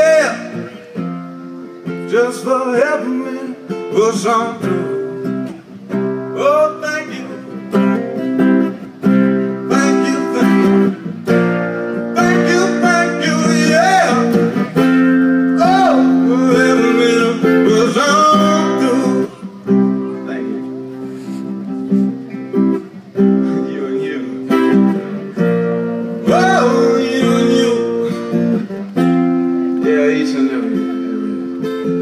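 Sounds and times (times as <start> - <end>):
man singing: 0.0 - 0.8, 2.0 - 5.3, 6.2 - 8.0, 9.5 - 11.2, 12.0 - 14.8, 15.4 - 20.6, 23.4 - 24.8, 26.2 - 28.6, 29.8 - 32.0
acoustic guitar strummed: 0.0 - 32.0.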